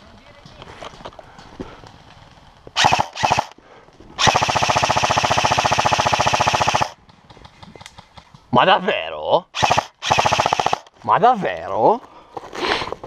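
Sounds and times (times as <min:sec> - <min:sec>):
airsoft rifle firing full auto: 0:02.8 - 0:03.6, 0:04.2 - 0:07.0, 0:09.6 - 0:10.9.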